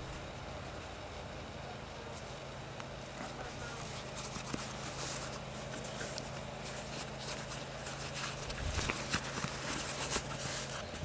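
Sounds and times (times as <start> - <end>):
steady low hum: 0.0 - 11.0
leather rustling: 3.7 - 11.0.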